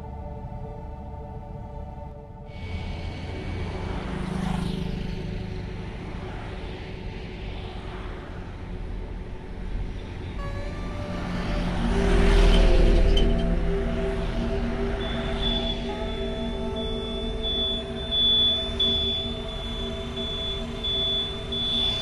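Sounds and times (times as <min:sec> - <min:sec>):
road traffic rumble: 0:02.4 - 0:22.0
lorry engine passing: 0:02.6 - 0:08.1, 0:10.4 - 0:22.0.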